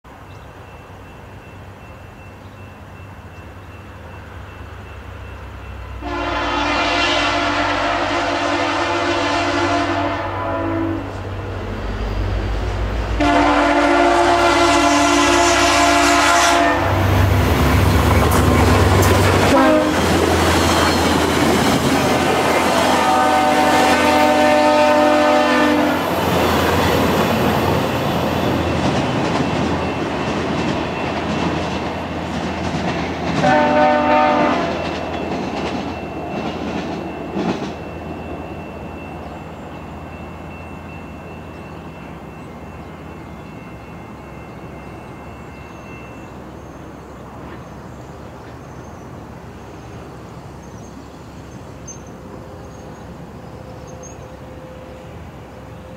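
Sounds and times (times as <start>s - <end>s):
train wheels rumbling: 0.1s - 55.9s
train horn: 5.9s - 11.3s, 13.1s - 17.4s, 18.9s - 27.0s, 33.4s - 35.2s.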